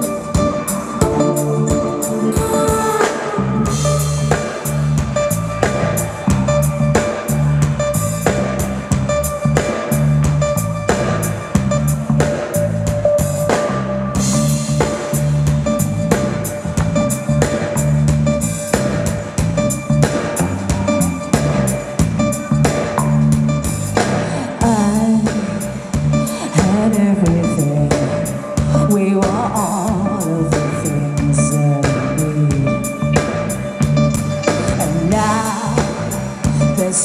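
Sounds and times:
held keyboard note: 0.0s - 25.6s
drum kit beat: 0.0s - 37.0s
electric guitar: 0.0s - 37.0s
pulsing bass line: 0.0s - 37.0s.

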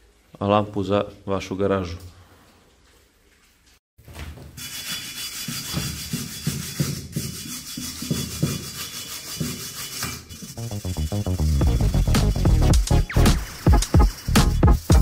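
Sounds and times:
metal tool scraping rust: 4.6s - 12.8s, 13.4s - 15.0s.

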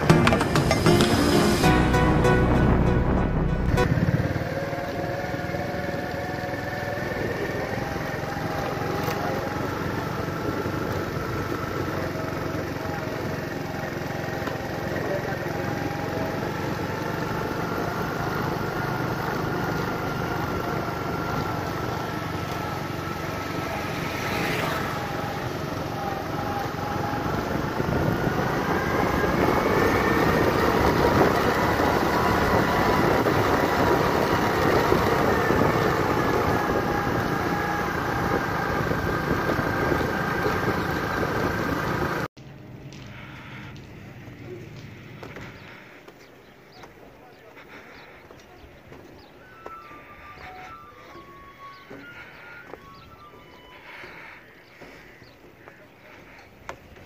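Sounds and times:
road noise: 0.0s - 57.0s
vehicle engine hum: 0.0s - 57.0s.

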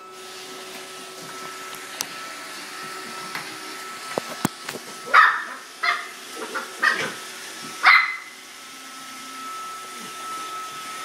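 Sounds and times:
robot vacuum humming: 0.0s - 11.0s
dog barking: 5.1s - 7.2s, 7.8s - 8.3s.

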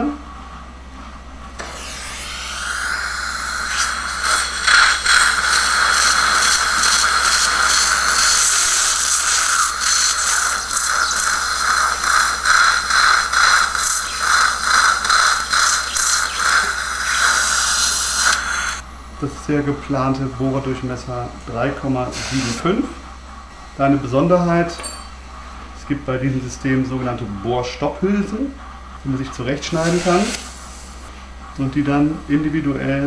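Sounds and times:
dental drill whining: 1.6s - 18.8s, 22.0s - 22.8s, 29.3s - 31.1s.

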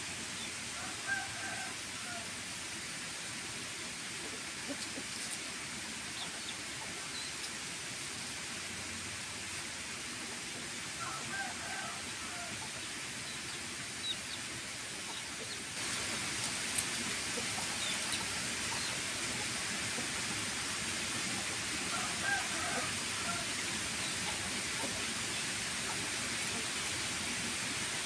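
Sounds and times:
steady background hiss: 0.0s - 28.0s
chickens clucking: 4.2s - 7.6s, 11.0s - 26.7s.

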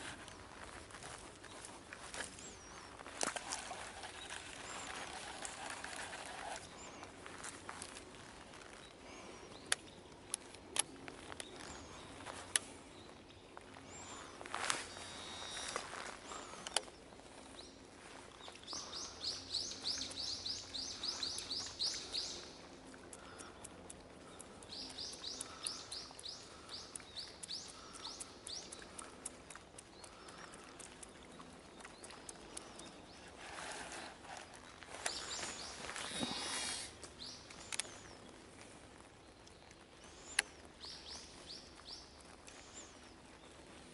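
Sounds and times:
faint outdoor background: 0.0s - 43.9s
sharp clicks: 23.0s - 33.0s.

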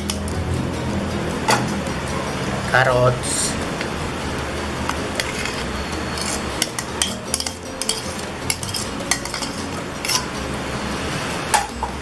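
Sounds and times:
metal spoon scraping a bowl: 4.9s - 10.4s.

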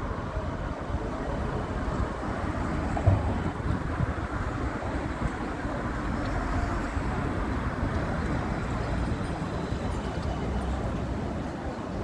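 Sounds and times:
traffic rumble: 0.0s - 12.0s
tram rumbling: 0.0s - 12.0s.

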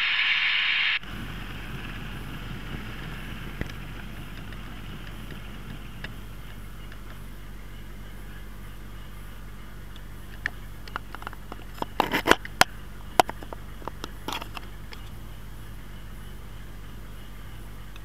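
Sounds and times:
steady low hum: 0.0s - 18.0s
light clicks and scrapes: 10.4s - 12.6s.

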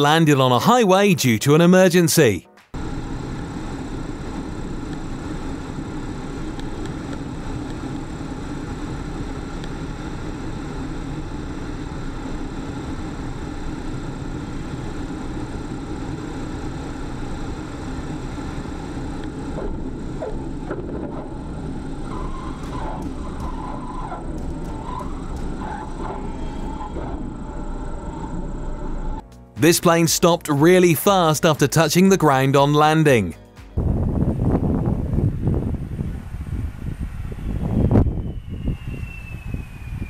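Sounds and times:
propeller plane engine drone: 2.8s - 29.7s, 33.8s - 40.0s
rushing airflow: 33.8s - 40.0s.

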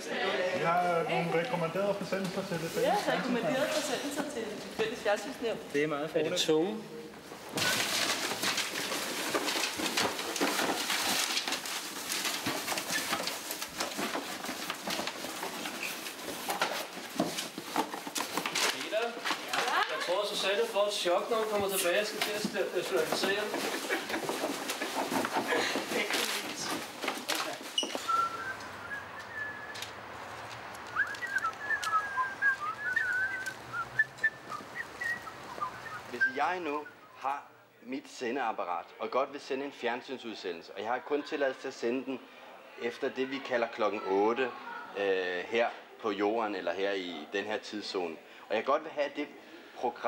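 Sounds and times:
paper rustling and pattering: 7.2s - 36.4s
person whistling a tune: 28.0s - 29.8s, 31.0s - 37.2s.

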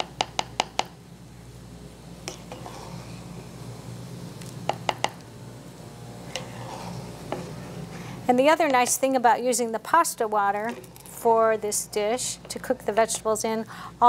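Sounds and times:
spatula tapping pan and bowl: 0.0s - 0.9s, 4.7s - 5.2s
steady low hum: 0.0s - 14.0s.

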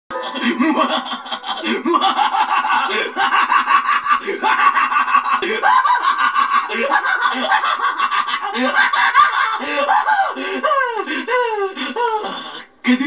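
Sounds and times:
cartoon voices laughing: 0.1s - 10.4s.

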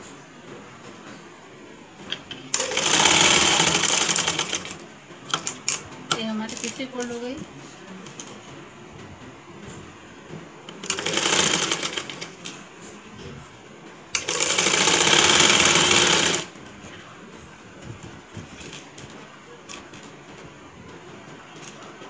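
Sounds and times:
sewing machine stitching: 2.5s - 5.6s, 10.8s - 12.5s, 14.2s - 16.6s.

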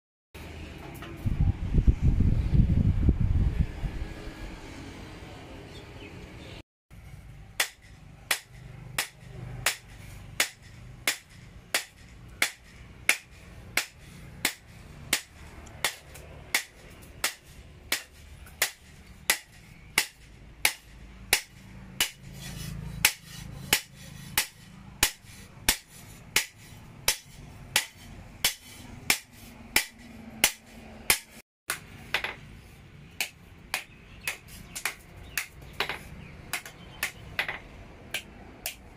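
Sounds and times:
hammer striking hot steel on anvil: 23.0s - 32.3s.

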